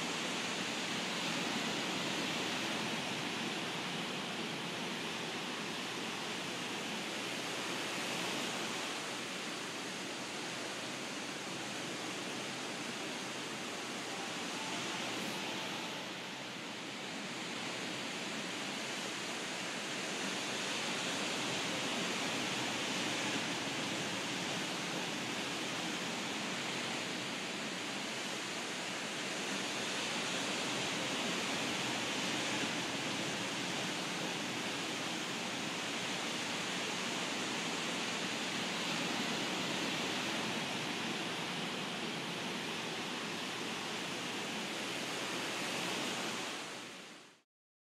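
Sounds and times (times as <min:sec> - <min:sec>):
ocean waves breaking: 0:20.0 - 0:46.6.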